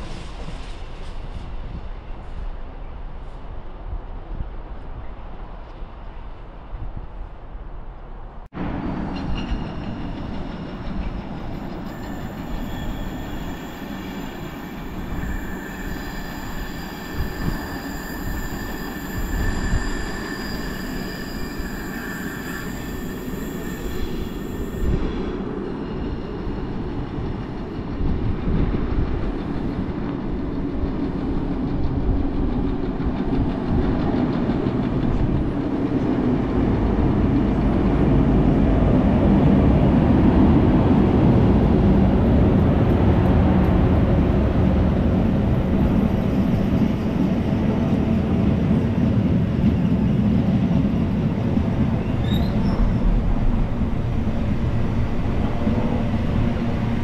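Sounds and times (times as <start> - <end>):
freight train rumble: 0.0 - 57.0
high whining tones: 11.7 - 25.2.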